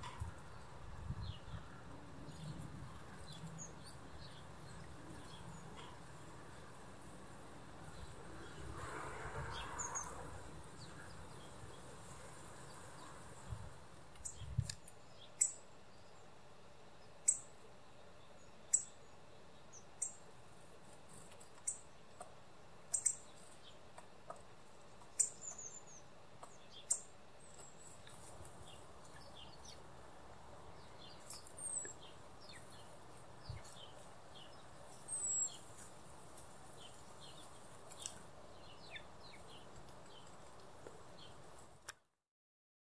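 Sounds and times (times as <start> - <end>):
songbird chirps: 0.0 - 42.0
thin bird twittering: 22.9 - 23.3.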